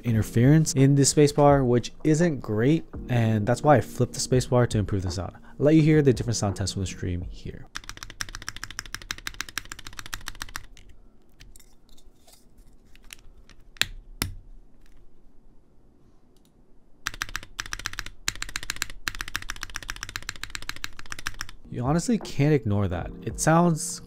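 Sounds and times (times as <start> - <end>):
mechanical keyboard typing: 7.7 - 10.9, 17.0 - 21.6.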